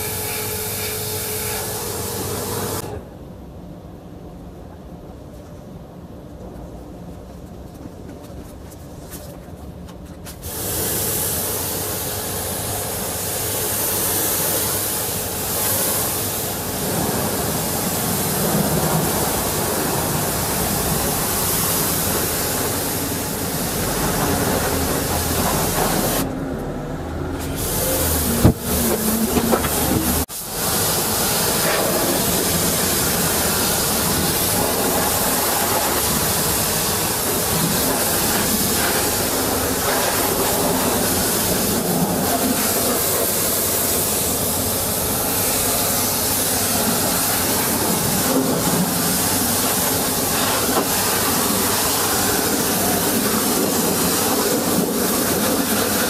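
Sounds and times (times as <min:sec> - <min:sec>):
pressure washer spraying: 0:10.4 - 0:26.3, 0:27.4 - 0:56.0.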